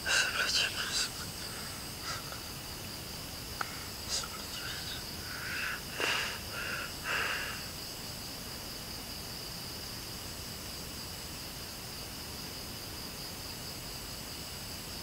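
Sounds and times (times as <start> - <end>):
night insects chirring: 0.0 - 15.0
breaths or sniffs: 5.2 - 7.7.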